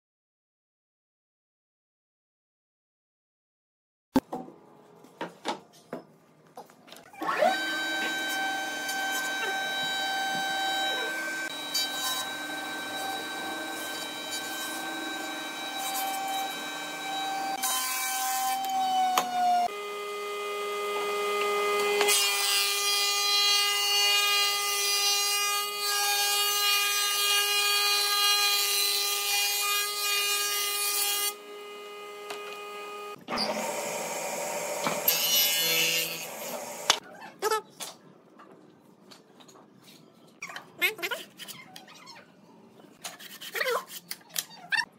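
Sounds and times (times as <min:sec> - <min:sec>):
jointer planing board: 0:07.2 - 0:23.5, 0:25.8 - 0:37.0
planer shaving plank: 0:07.5 - 0:22.8.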